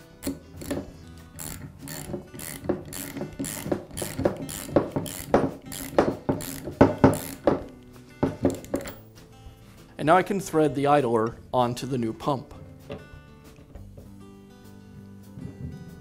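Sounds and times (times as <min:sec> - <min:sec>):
ratchet wrench clicking: 0:00.2 - 0:09.1.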